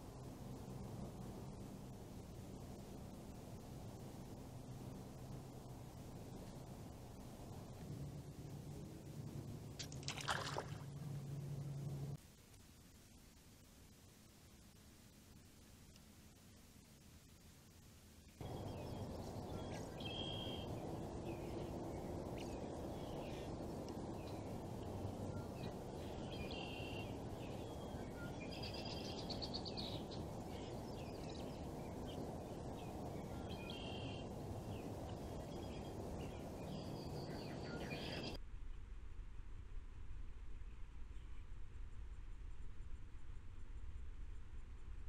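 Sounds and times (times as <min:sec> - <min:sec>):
low background hiss: 0:00.0 - 0:38.4
songbirds singing: 0:18.4 - 0:38.4.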